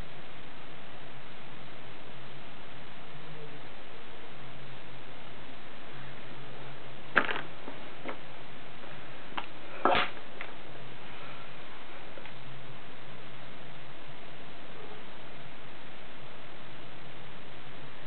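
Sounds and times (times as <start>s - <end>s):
low hum: 0.0s - 18.0s
steady hiss: 0.0s - 18.0s.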